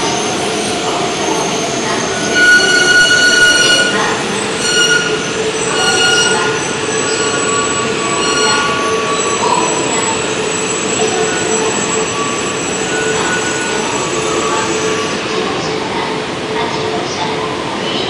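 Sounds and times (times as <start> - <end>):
train rolling rumble: 0.0 - 18.0
wheel and brake squeals: 1.3 - 15.2.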